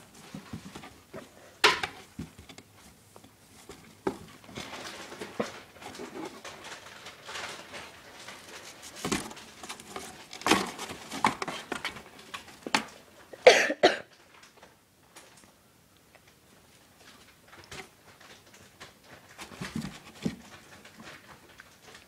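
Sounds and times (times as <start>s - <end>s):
cardboard rustling and scratching: 0.0s - 13.0s, 17.6s - 22.0s.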